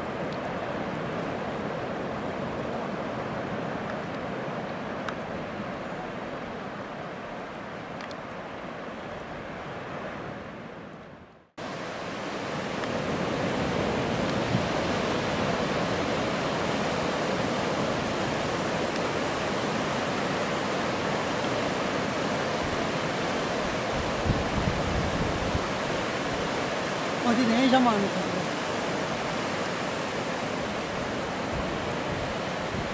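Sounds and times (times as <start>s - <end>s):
ocean surf breaking on beach: 0.0s - 32.9s.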